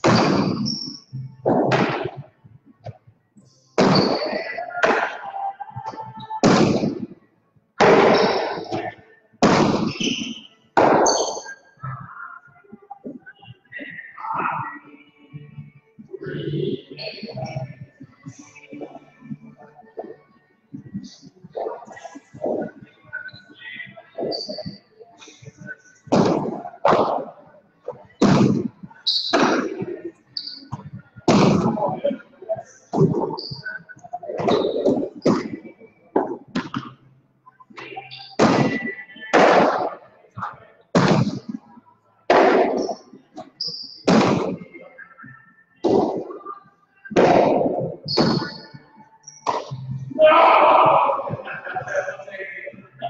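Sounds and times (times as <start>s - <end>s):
ball smacking with echoing ring: 0.0s - 0.9s, 3.8s - 5.2s, 7.8s - 11.6s, 28.2s - 29.9s, 47.1s - 48.7s.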